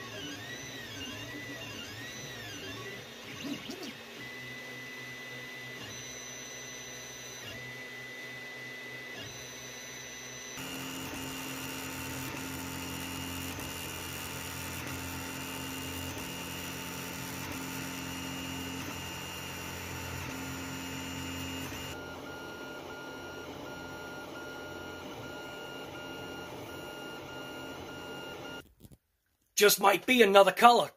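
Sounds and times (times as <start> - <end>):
stepper motors whining: 9.2 - 28.6.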